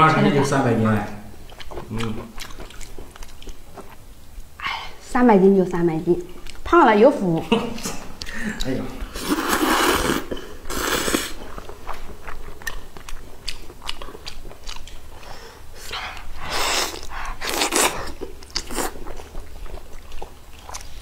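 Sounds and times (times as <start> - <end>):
wet chewing: 1.4 - 4.5, 5.5 - 21.0
slurping noodles: 9.1 - 11.4.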